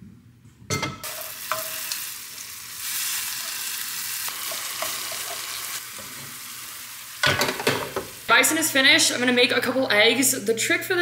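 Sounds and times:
spatula scraping and tapping pan: 1.0s - 2.0s, 4.4s - 6.3s
meat sizzling in a pan: 1.0s - 9.1s.

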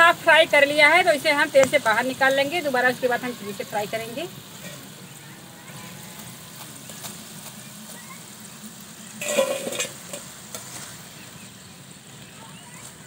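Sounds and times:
potatoes sizzling in hot oil: 0.0s - 13.0s
metallic clatter into steel bowl: 9.2s - 10.7s.

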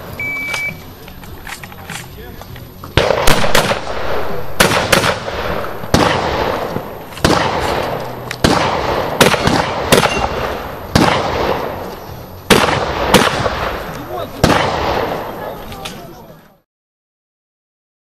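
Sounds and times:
shotgun shots echoing: 3.0s - 11.9s, 12.5s - 15.6s.

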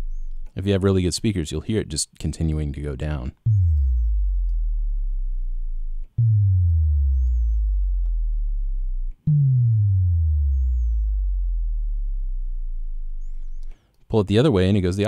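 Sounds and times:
synth bass tone gliding downward: 3.4s - 13.7s.

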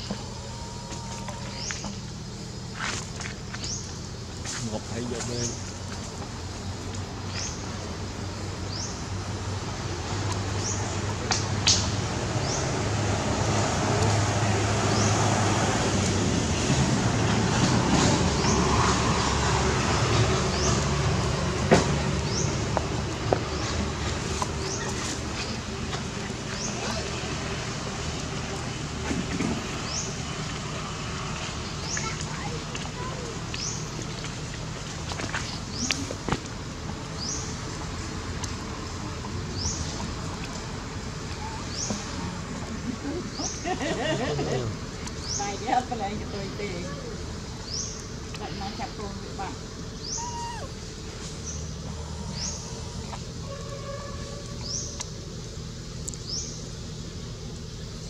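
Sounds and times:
low background noise: 0.0s - 58.0s
steady rumbling hiss: 0.0s - 58.0s
bird chirping: 49.9s - 50.7s.

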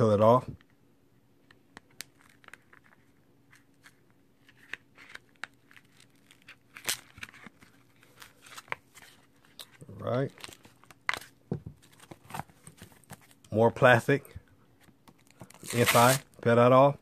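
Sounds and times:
plastic film crinkling: 1.9s - 13.3s, 15.2s - 16.2s.

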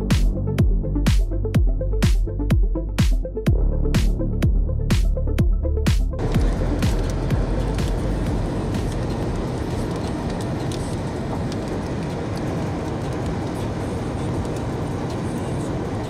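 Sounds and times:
wind noise on microphone: 6.2s - 16.0s.

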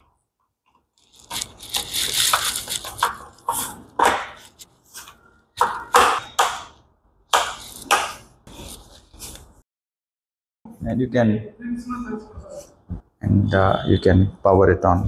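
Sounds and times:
handling and rubbing noise: 0.7s - 5.2s, 7.6s - 9.6s.

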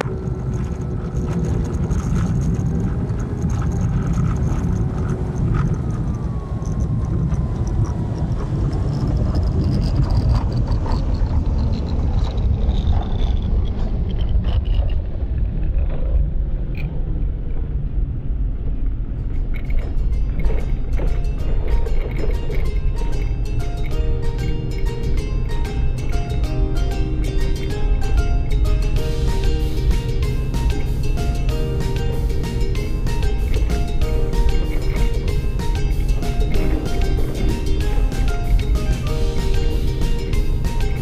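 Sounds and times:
tyres rolling on wet gravel: 0.0s - 6.2s
car engine running: 0.0s - 15.3s, 16.6s - 41.0s.

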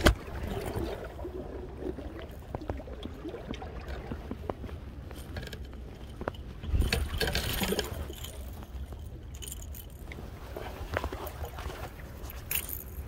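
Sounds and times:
phone microphone handling noise: 0.0s - 0.2s
light metallic clinks: 5.1s - 10.2s, 12.2s - 13.0s.

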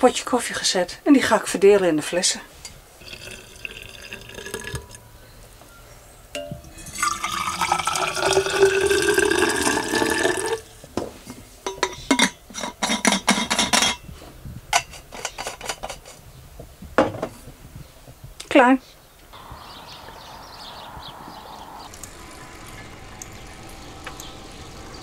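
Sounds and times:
coffee pouring into flask: 3.0s - 5.0s, 6.8s - 10.7s.

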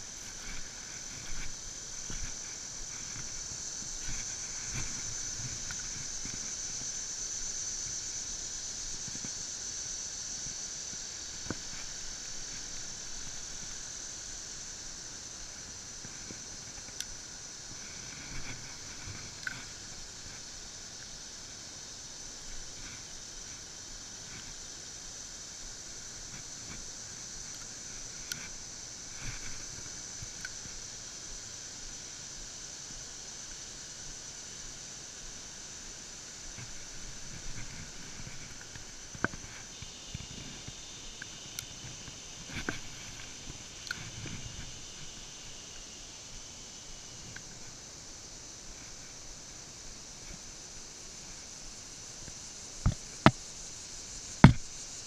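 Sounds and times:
insects chorus: 0.0s - 55.0s.

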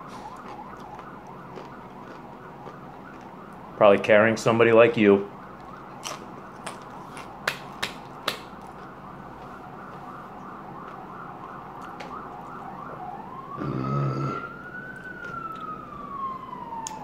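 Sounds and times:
distant ambulance siren: 0.0s - 17.0s
hand claps: 7.4s - 8.5s.

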